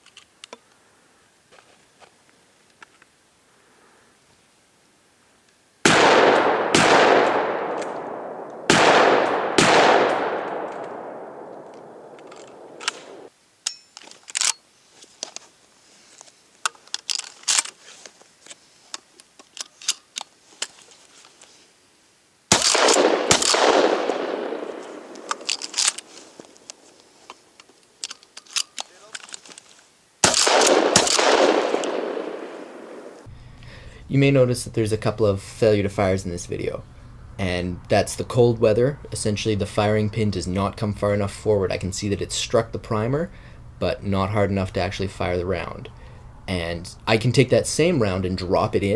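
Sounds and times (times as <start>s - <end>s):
shells loading and pump clacks: 0.0s - 0.7s, 10.2s - 15.5s, 16.1s - 21.5s, 22.5s - 32.6s
shotgun shots with echo: 5.9s - 13.3s, 22.5s - 25.5s, 30.2s - 33.2s.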